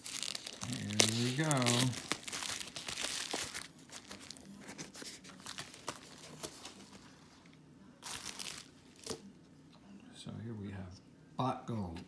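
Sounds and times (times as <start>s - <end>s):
bubble wrap crinkling: 0.0s - 7.0s, 8.0s - 9.2s.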